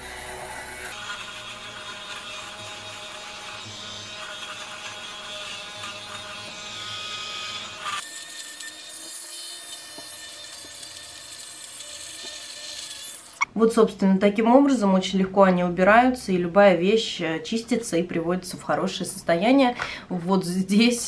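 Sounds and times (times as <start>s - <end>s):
fabric shaver buzzing: 0.0s - 13.5s.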